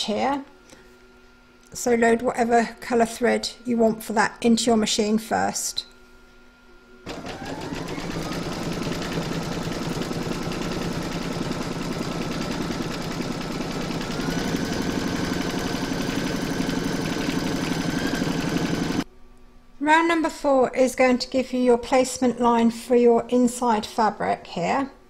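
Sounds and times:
embroidery machine stitching: 7.1 - 19.0.

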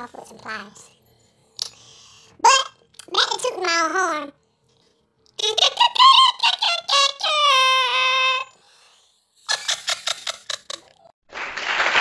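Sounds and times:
applause: 11.3 - 12.0.

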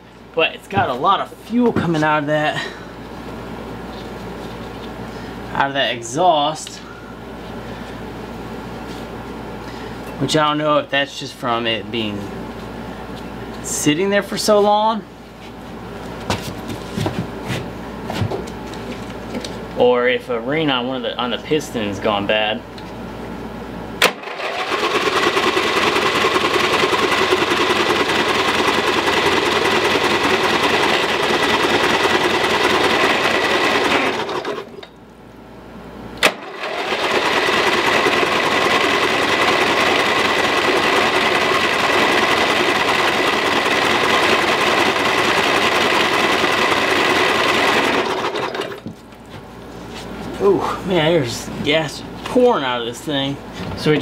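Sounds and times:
engine cranking on electric starter: 24.0 - 34.8, 36.2 - 48.8.

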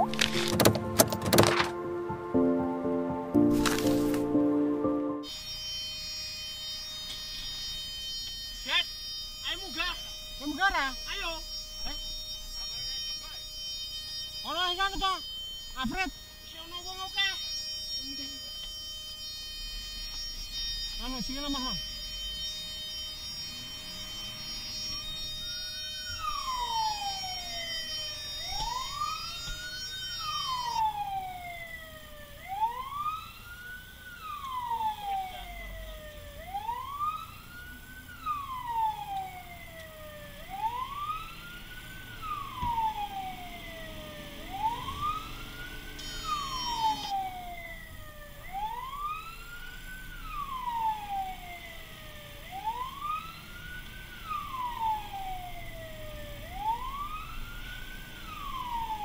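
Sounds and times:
fire engine siren wailing: 0.0 - 59.0.

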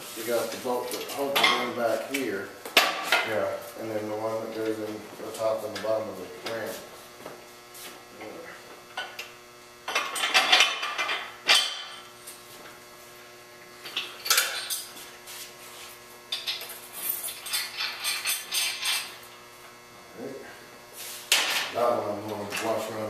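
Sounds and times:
electrical hum: 0.0 - 23.0
chain clinking and rattling: 16.9 - 19.1.

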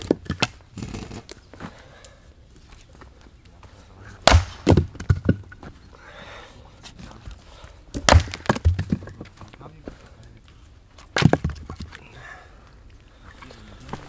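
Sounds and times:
hatchet chopping log: 4.2 - 5.4, 8.0 - 9.1.

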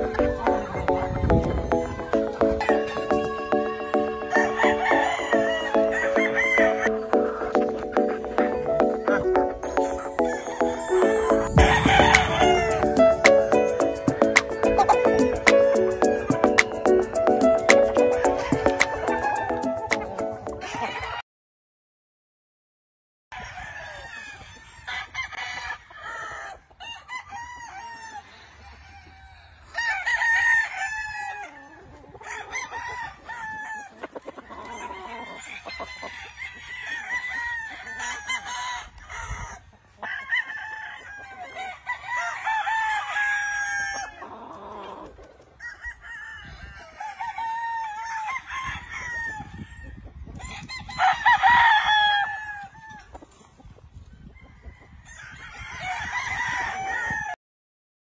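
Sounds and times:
roosters crowing: 0.0 - 8.2, 9.6 - 21.2, 23.3 - 53.4, 54.5 - 57.4
chickens clucking: 0.0 - 21.2, 27.9 - 48.8, 52.8 - 55.0.

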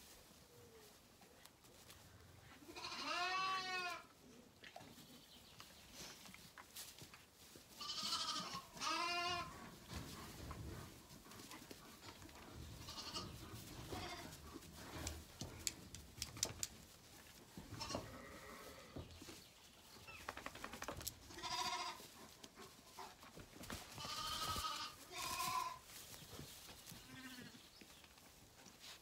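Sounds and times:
lambs bleating: 2.7 - 4.1, 7.8 - 9.6, 12.8 - 14.4, 21.3 - 22.0, 24.0 - 25.8, 27.0 - 27.6.

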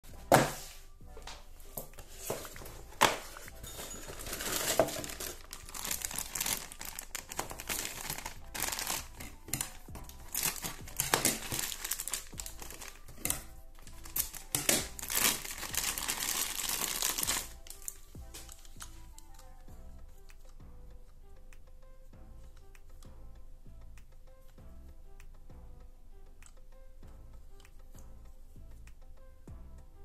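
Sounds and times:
plastic wrapper crinkling: 1.8 - 19.5.

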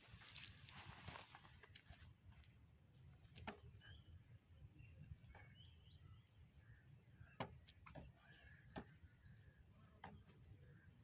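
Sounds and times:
faint bird chirps: 3.5 - 11.0.

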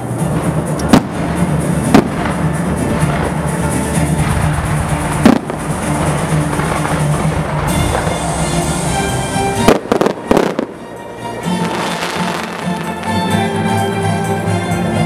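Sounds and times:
music: 0.0 - 15.0
fireworks bangs: 0.3 - 13.3.

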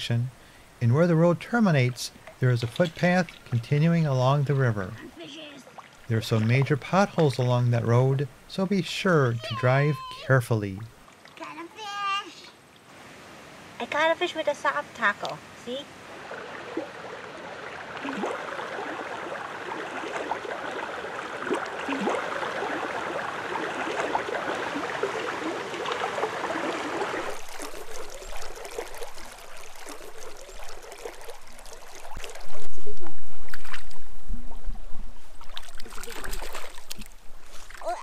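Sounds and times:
river current rushing: 0.0 - 38.0
fish splashing: 16.0 - 32.6, 35.3 - 38.0.

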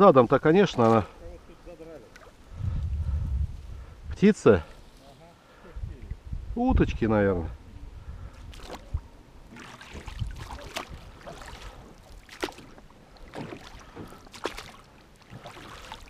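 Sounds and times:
oar strokes splashing: 0.6 - 1.2, 2.0 - 2.5, 8.4 - 16.0
low wash of water: 8.3 - 16.0.

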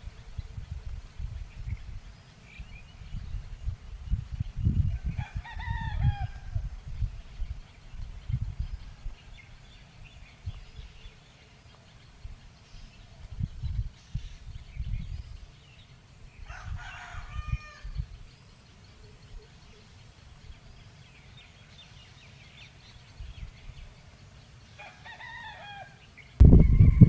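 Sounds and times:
rooster crowing: 5.1 - 6.6, 16.4 - 18.0, 24.8 - 27.0
low muffled thumps: 26.4 - 27.0.

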